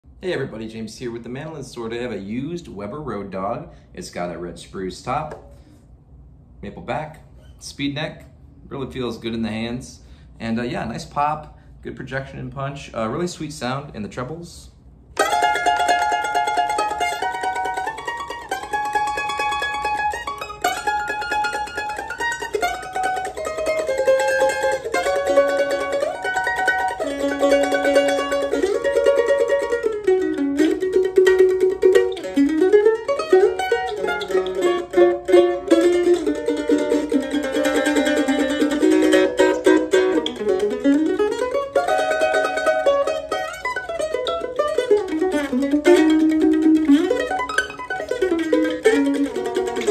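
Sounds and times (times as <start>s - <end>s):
mandolin played with a pick: 15.1s - 49.9s.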